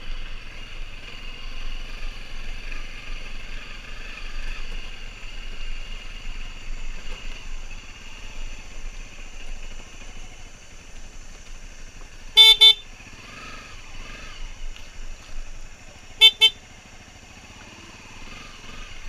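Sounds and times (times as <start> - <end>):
motorcycle engine running: 0.0 - 19.0
motorcycle horn beeps: 12.4 - 13.0, 16.2 - 16.8.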